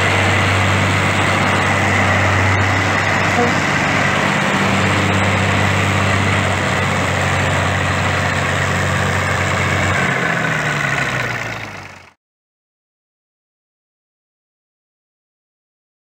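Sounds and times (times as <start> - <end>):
diesel engine idling: 0.0 - 12.2.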